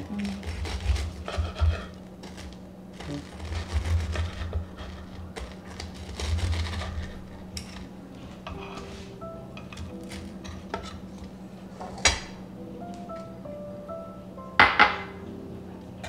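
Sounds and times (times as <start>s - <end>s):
knife sawing through crispy crust: 0.0s - 7.9s
steady low hum: 0.0s - 16.0s.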